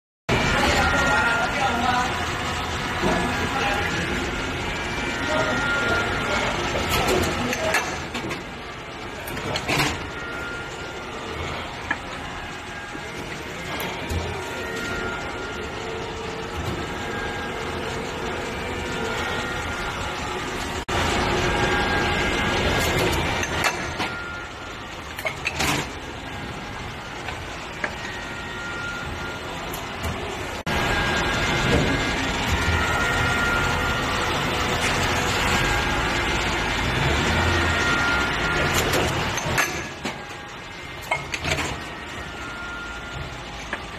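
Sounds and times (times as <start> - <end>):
machine running: 0.3 - 43.9.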